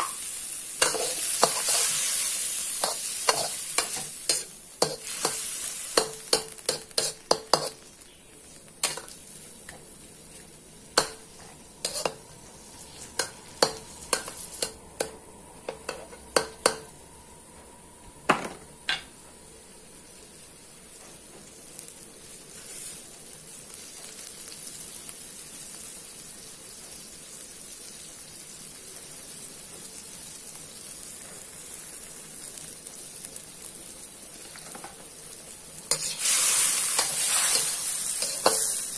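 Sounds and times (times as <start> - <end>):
meat sizzling: 0.0 - 17.0, 19.5 - 38.9
metal spatula scraping a wok: 0.8 - 7.9, 11.0 - 14.8, 35.9 - 38.9.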